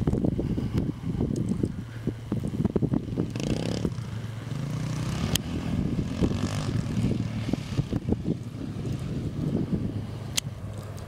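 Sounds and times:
quad engine revving: 0:03.2 - 0:11.0.

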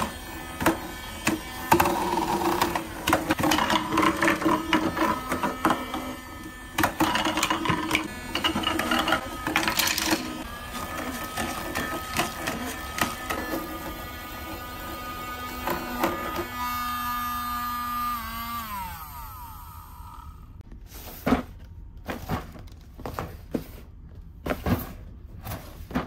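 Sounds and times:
small fan motors whirring: 0:00.0 - 0:20.6.

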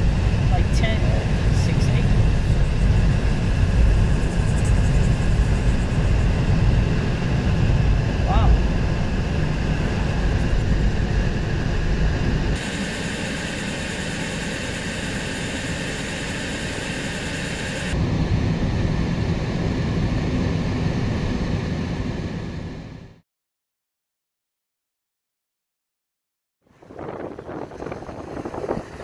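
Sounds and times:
moving vehicle rumble and hiss: 0:00.0 - 0:12.6.

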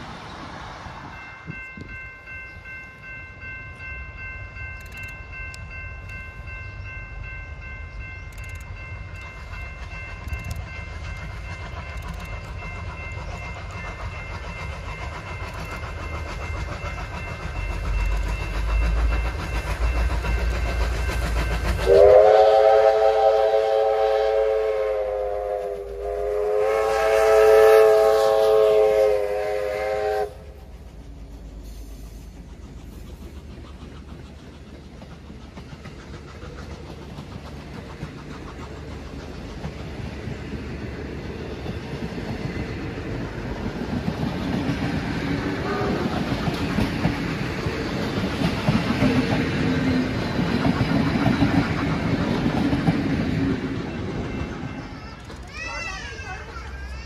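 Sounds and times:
steam locomotive rumble: 0:00.0 - 0:57.0
steam whistle blasts: 0:21.8 - 0:30.6, 0:45.6 - 0:46.0.

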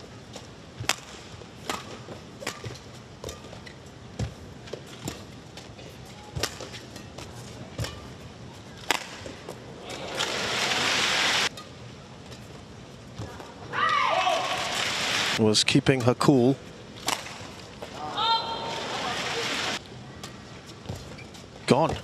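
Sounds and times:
rackets striking shuttlecock: 0:00.8 - 0:03.7, 0:08.8 - 0:09.5, 0:17.0 - 0:17.6
crowd cheering: 0:18.0 - 0:19.8.

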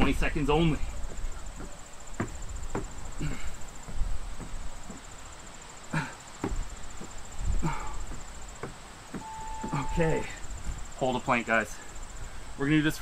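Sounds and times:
cricket trilling: 0:00.0 - 0:13.0
hands knocking on wooden deck: 0:01.0 - 0:03.0, 0:03.8 - 0:05.0, 0:06.4 - 0:07.2
man breathing: 0:03.0 - 0:04.2, 0:05.8 - 0:06.3, 0:07.4 - 0:08.3, 0:11.7 - 0:12.6.

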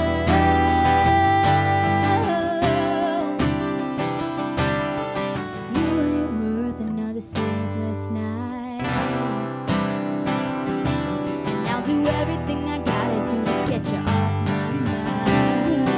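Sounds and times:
woman singing: 0:00.0 - 0:03.8, 0:05.6 - 0:10.0, 0:11.4 - 0:15.9
acoustic guitars strumming: 0:00.0 - 0:15.9.

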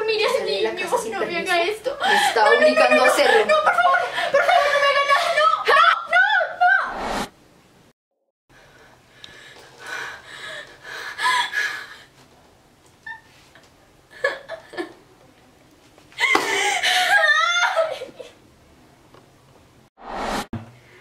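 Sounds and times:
woman sobbing: 0:02.0 - 0:06.7, 0:16.2 - 0:18.4.

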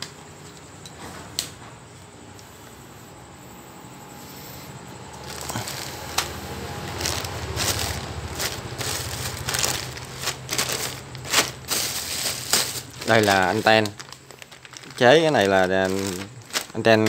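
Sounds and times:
plastic bags crinkling: 0:05.2 - 0:17.0.

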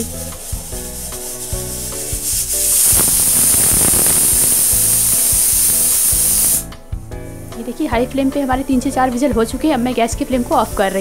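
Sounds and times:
pressure cooker whistle hissing steam: 0:00.0 - 0:06.7.

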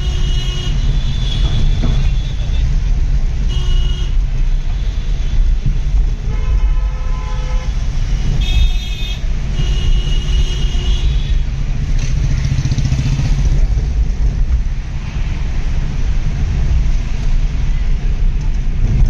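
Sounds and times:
vehicle horns: 0:00.0 - 0:02.7, 0:03.4 - 0:05.5, 0:06.2 - 0:11.6
road and engine rumble: 0:00.0 - 0:19.0.

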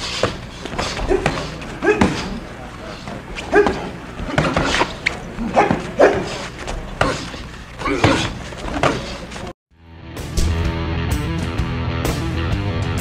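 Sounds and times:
boxers grunting: 0:00.0 - 0:09.5.

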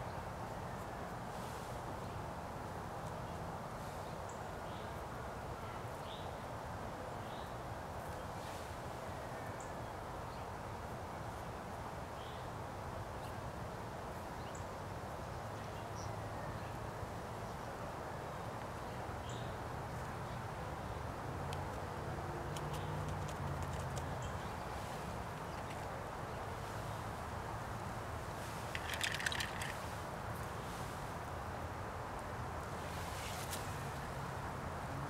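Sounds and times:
small birds chirping: 0:28.4 - 0:30.9.

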